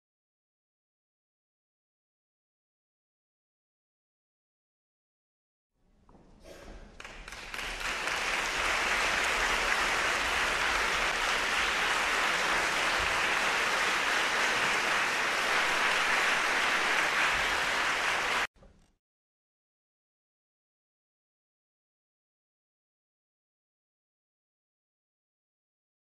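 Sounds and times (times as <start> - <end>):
audience applauding: 6.9 - 18.5.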